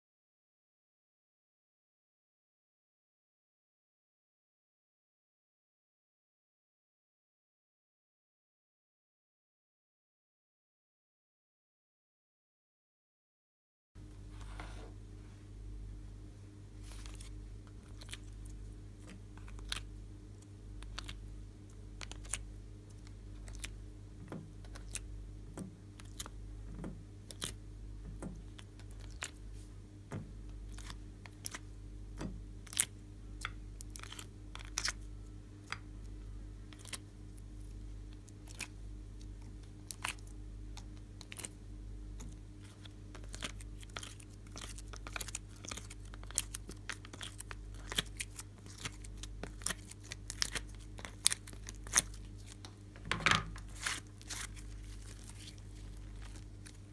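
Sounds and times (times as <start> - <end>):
steady low hum: 14.0 - 56.9.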